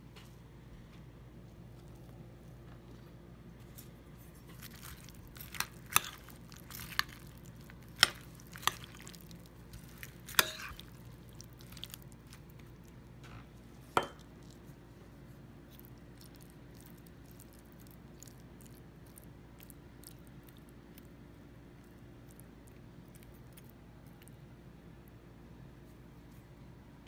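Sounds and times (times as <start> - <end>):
wet squishing of vegetables: 3.6 - 24.4.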